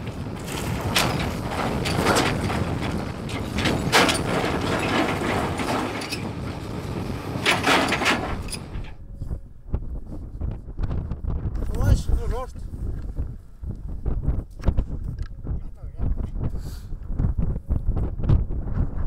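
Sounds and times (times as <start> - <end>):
excavator bucket scraping rock: 0.0 - 9.0
rock clattering: 0.0 - 9.0
low engine rumble: 0.0 - 10.7.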